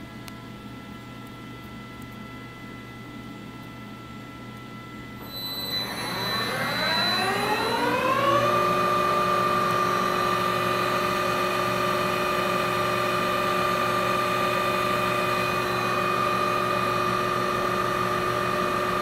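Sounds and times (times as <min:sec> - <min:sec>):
lathe spindle whine: 0:05.2 - 0:19.0.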